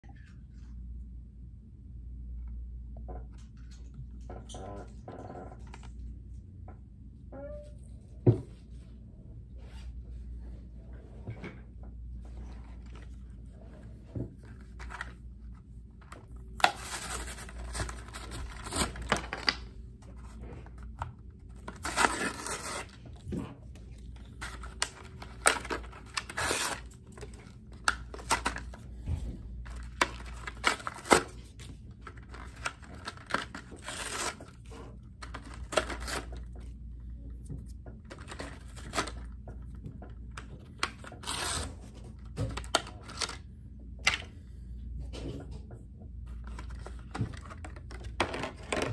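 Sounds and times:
blister pack tearing: 16.5 - 19.6, 21.7 - 23.0, 24.3 - 28.7.

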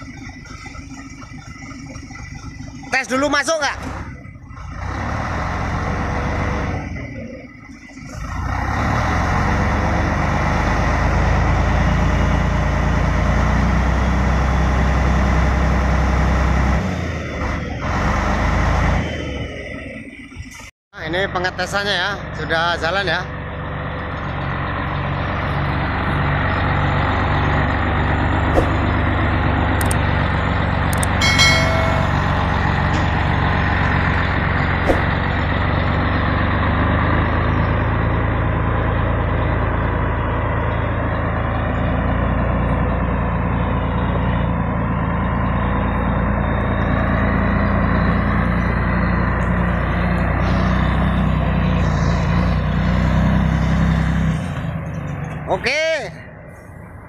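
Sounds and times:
diesel truck engine under load: 0.0 - 57.0
brief higher tone: 31.2 - 33.2.

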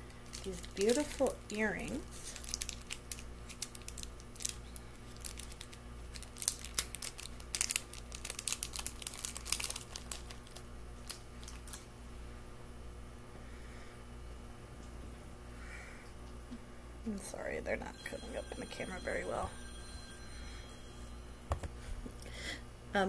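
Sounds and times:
packaging crinkling: 0.1 - 11.9.

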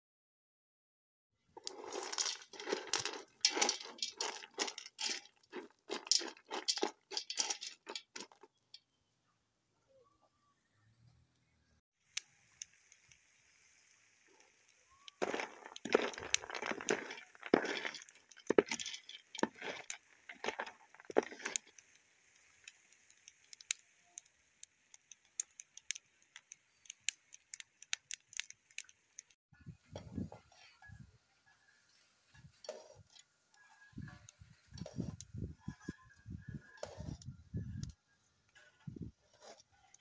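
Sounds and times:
kernels hissing and popping: 1.5 - 8.9, 12.0 - 29.4, 31.9 - 40.0
spatula stirring kernels in pot: 1.6 - 8.6, 12.5 - 29.0.

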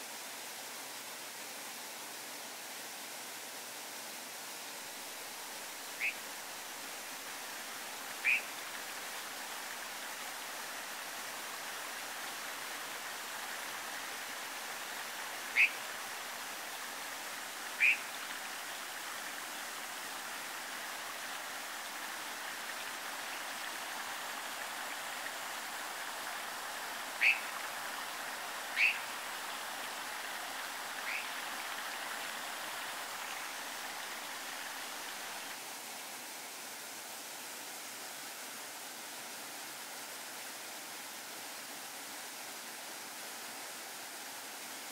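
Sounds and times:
mountain stream rushing: 0.0 - 44.9
sharp bird calls: 8.2 - 8.5, 15.5 - 15.8, 17.8 - 18.1, 27.2 - 27.5, 28.7 - 29.1, 31.0 - 31.4.

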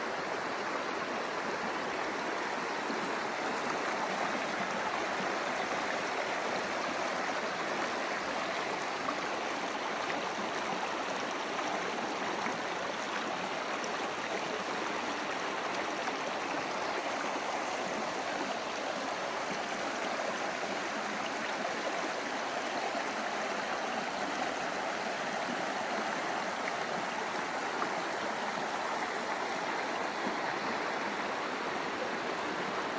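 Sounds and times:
stream flowing over stones: 0.0 - 32.9.

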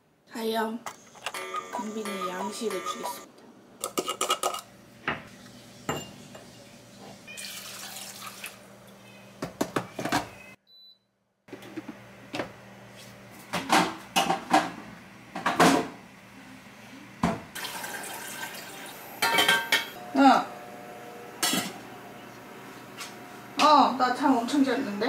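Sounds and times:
water pouring: 7.4 - 8.7, 17.6 - 19.1.

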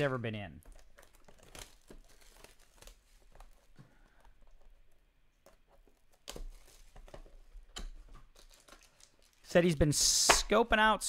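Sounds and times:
plastic shrink wrap crinkling: 0.1 - 5.0, 5.8 - 9.8.

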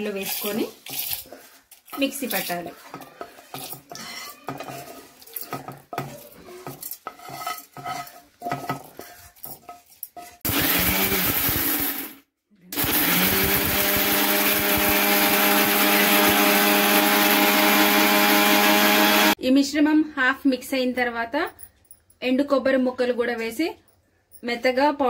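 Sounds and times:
seeds rattling into steel jar: 0.0 - 2.7
mixer grinder grinding: 10.4 - 12.2, 12.8 - 19.4.

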